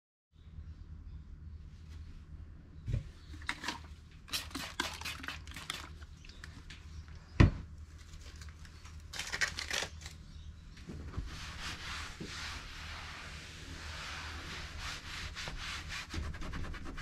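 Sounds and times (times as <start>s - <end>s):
rustling and crinkling handling: 7.7s - 12.3s.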